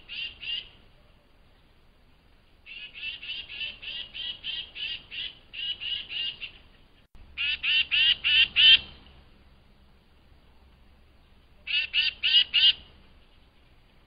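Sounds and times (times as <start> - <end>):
titmouse calling: 11.6 - 12.8.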